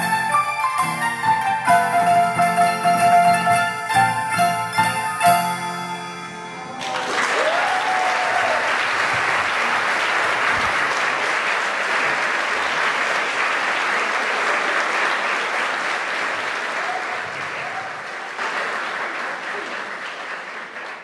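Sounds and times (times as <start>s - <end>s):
hammered dulcimer chord ringing: 0.0s - 6.8s
audience applause: 6.3s - 21.0s.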